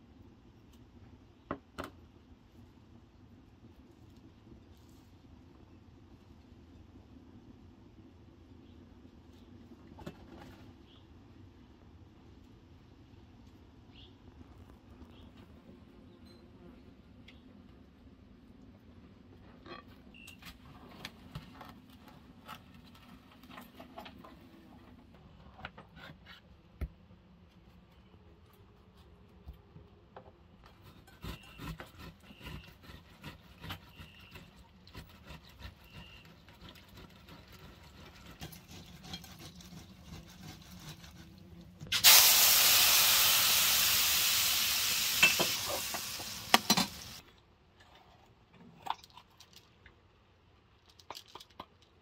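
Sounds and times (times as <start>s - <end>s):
tomato scraping on grater: 30.7s - 41.4s
loud steady hiss: 41.9s - 47.2s.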